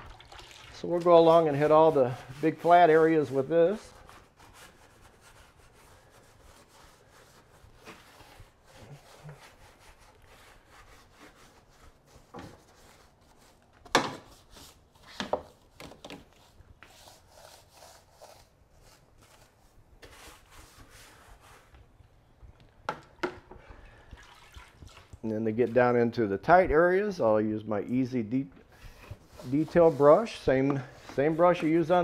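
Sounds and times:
brush scrubbing: 0.8s - 15.1s, 16.2s - 21.7s, 28.8s - 32.0s.

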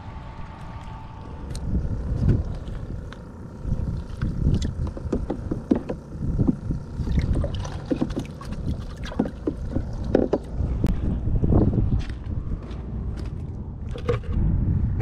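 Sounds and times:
wind rumble on microphone: 0.0s - 15.0s
water splashing in a bucket: 7.0s - 10.1s.

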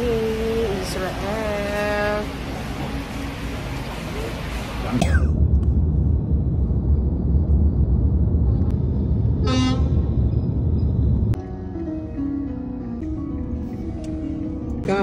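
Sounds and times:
road and engine rumble: 0.0s - 15.0s
vehicle horn toot: 9.4s - 10.1s.

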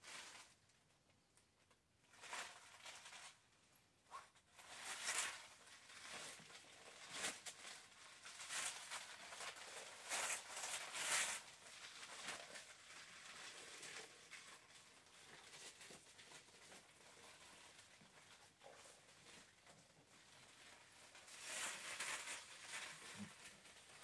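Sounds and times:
plastic dress rustling and crinkling: 0.0s - 24.0s.

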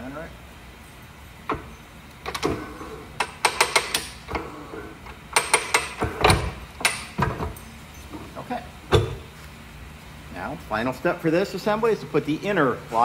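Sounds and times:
sharp metal clicks and knocks: 3.2s - 4.2s, 5.3s - 7.6s.

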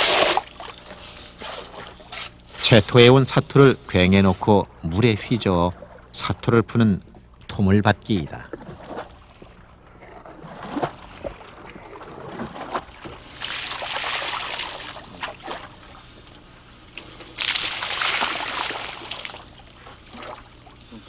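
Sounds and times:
splashing: 8.6s - 16.0s, 17.0s - 21.0s.

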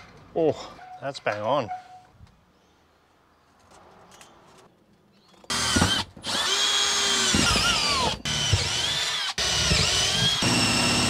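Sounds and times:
cordless drill drilling: 5.5s - 11.0s.

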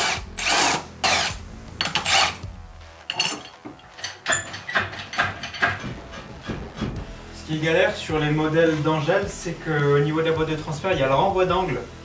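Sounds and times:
power drill-driver running: 0.0s - 2.4s
metal tool clicks and knocks: 3.1s - 6.0s.

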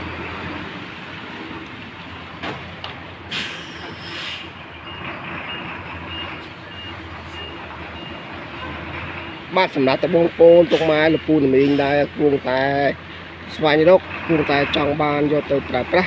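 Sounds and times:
outdoor background noise: 0.0s - 16.0s
brief hiss: 3.3s - 4.5s.

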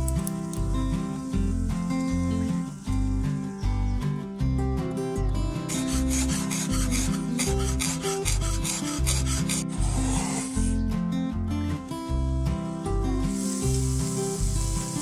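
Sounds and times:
cheese grating on metal grater: 5.7s - 10.5s
short hiss: 13.3s - 15.0s.

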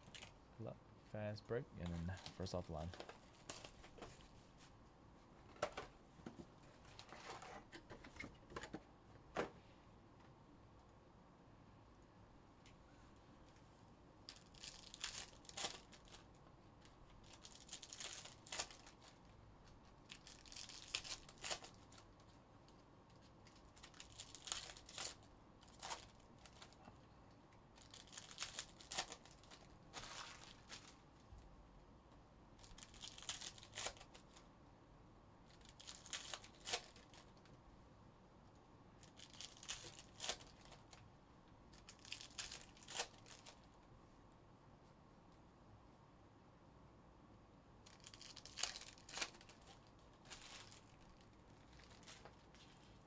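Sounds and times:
foil wrappers tearing and crinkling: 14.3s - 16.3s, 17.2s - 19.2s, 20.0s - 22.0s, 23.4s - 26.8s, 27.8s - 31.0s, 32.6s - 34.4s, 35.5s - 37.3s, 39.0s - 41.0s, 41.8s - 43.7s, 47.9s - 53.0s.

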